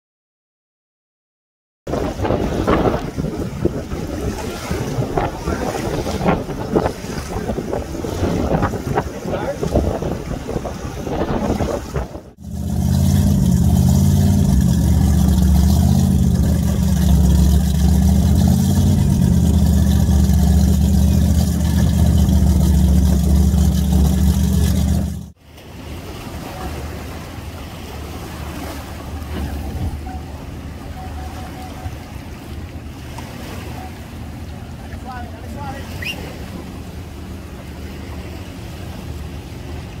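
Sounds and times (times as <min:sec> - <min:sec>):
engine idling deep rumble: 0:02.0 - 0:25.4
open-air background noise: 0:24.6 - 0:40.0.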